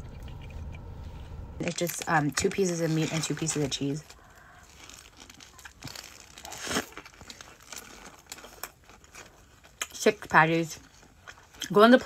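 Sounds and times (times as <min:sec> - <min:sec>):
paper wrapper crinkling: 0:01.6 - 0:12.0
close-up chewing: 0:03.8 - 0:12.0.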